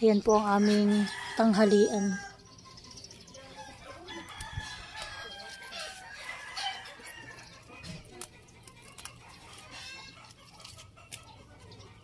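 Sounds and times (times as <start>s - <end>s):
chickens clucking: 0.2s - 12.0s
rooster crowing: 0.6s - 2.4s, 4.0s - 7.6s
leaves rustling and snapping: 7.8s - 11.3s.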